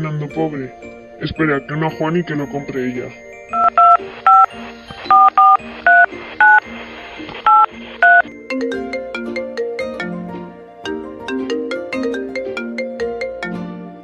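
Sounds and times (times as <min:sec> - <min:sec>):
soft background music: 0:00.0 - 0:14.0
melodic phone ringtone: 0:03.4 - 0:06.6, 0:07.5 - 0:09.1
phone keypad beeps: 0:03.5 - 0:06.6, 0:07.4 - 0:08.3.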